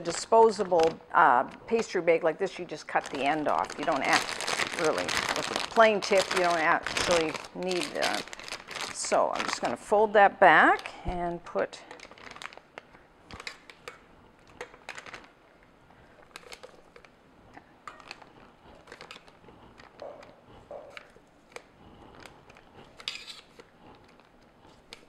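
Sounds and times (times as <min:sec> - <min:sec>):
plastic bag crinkling: 0:00.0 - 0:10.1, 0:11.8 - 0:17.2, 0:17.8 - 0:25.0.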